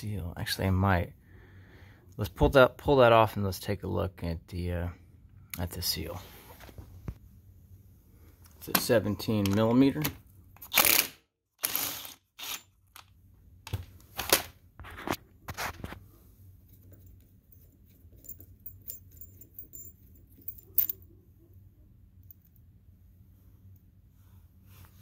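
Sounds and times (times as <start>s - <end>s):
faint clinking of metal parts: 16.6s - 21.2s.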